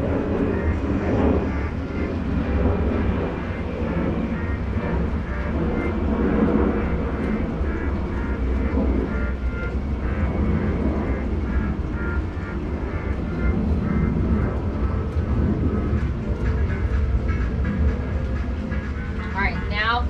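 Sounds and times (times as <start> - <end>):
broad noisy haze: 0.0 - 20.0
steady low rumble: 0.0 - 20.0.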